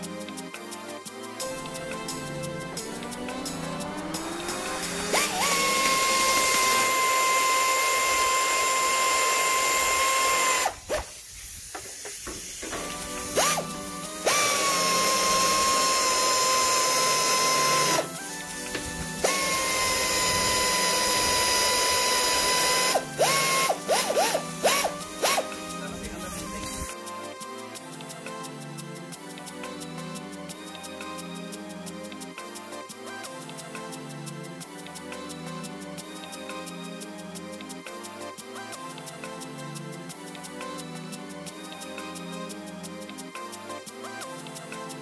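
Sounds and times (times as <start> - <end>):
air ratchet wrench whining: 3.5 - 25.5.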